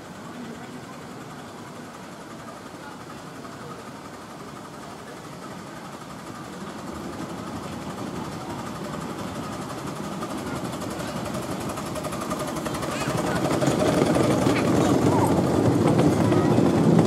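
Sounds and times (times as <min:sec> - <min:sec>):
steam locomotive chuffing: 0:00.0 - 0:17.0
wheels rumbling on rail: 0:00.0 - 0:17.0.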